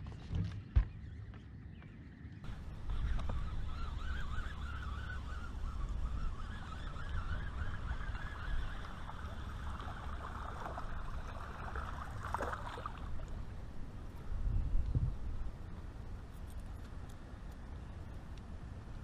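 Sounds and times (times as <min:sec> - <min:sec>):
wind rumbling on microphone: 0:00.0 - 0:19.0
water lapping around a boat: 0:02.5 - 0:14.2
fish splash: 0:09.0 - 0:13.3.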